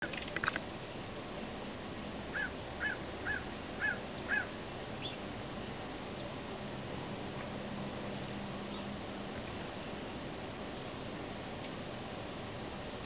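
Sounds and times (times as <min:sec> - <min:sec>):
bird short calls: 0:02.3 - 0:05.2.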